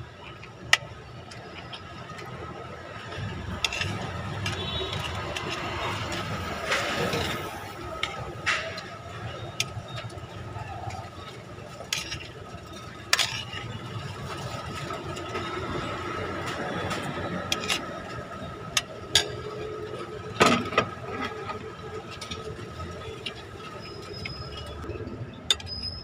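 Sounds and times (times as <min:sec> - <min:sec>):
engines and traffic hum: 0:00.0 - 0:26.0
metal spoon scraping a plate: 0:03.5 - 0:08.2, 0:11.8 - 0:13.9.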